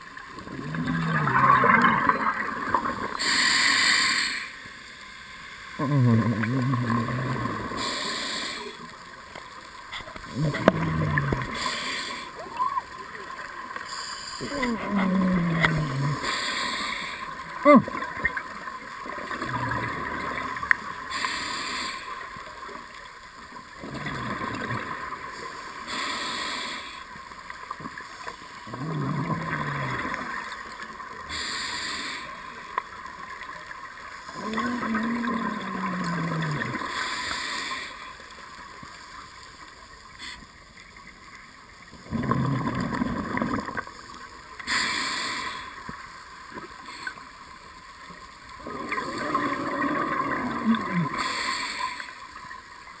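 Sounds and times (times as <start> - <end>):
diver inhaling through regulator: 3.1 - 4.6, 7.6 - 8.8, 10.5 - 12.4, 13.9 - 17.3, 21.1 - 22.2, 25.8 - 27.1, 31.3 - 32.4, 44.6 - 45.8.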